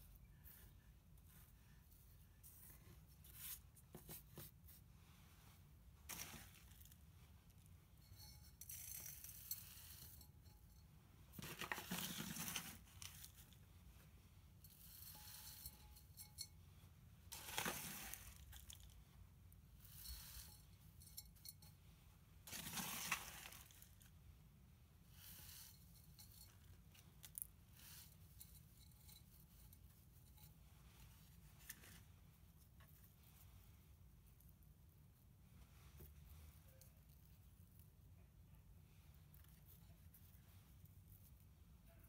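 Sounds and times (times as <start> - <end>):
potting mix crunching and pouring: 6.0 - 7.0, 8.1 - 10.3, 11.3 - 13.6, 17.3 - 19.0, 22.4 - 24.2.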